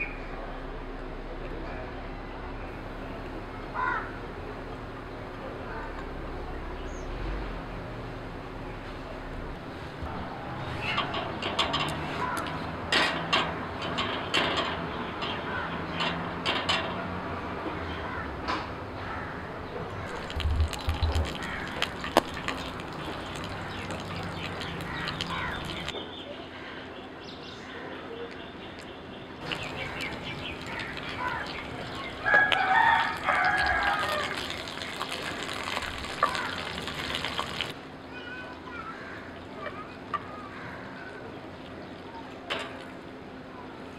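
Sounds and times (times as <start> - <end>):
oil sizzling in frying pan: 20.0 - 25.9, 29.4 - 37.8.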